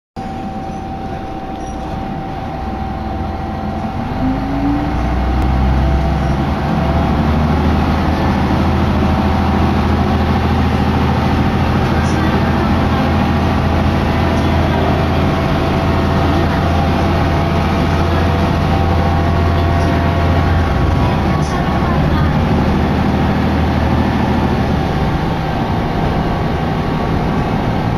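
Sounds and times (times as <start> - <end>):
diesel railcar engine droning: 0.2 - 27.9.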